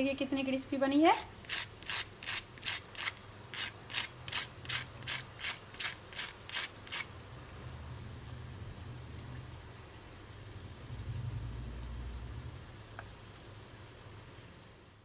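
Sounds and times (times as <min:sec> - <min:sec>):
fork rasping on crispy crust: 0:01.1 - 0:07.1.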